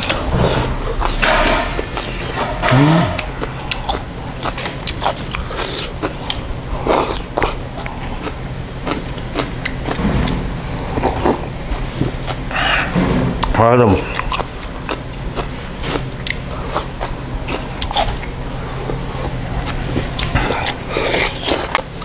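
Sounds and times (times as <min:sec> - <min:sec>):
person grunting: 0:02.6 - 0:03.3
chewing with small clicks: 0:03.2 - 0:10.0, 0:13.4 - 0:22.0.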